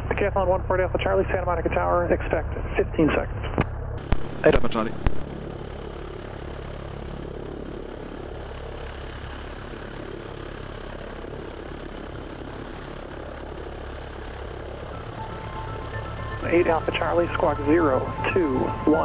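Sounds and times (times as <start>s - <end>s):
propeller plane engine idling: 4.0s - 19.0s.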